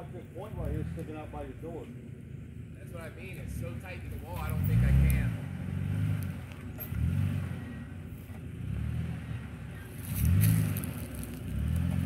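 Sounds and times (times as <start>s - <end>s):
pickup truck engine revving: 3.5s - 12.0s.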